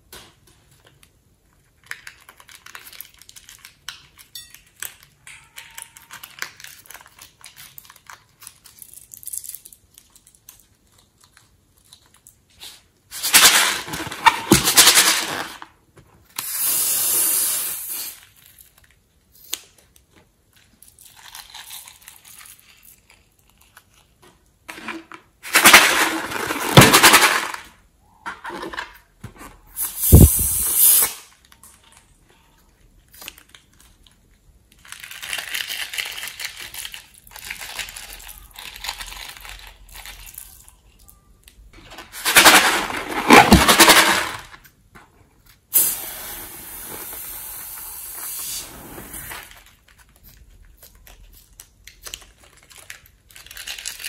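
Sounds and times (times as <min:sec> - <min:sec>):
noisy squeezing bursts: 0:29.8 - 0:31.2.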